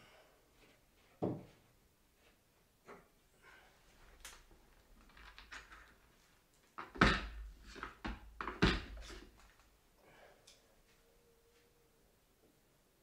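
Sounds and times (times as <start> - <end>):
handling knocks and thuds: 6.8 - 9.5.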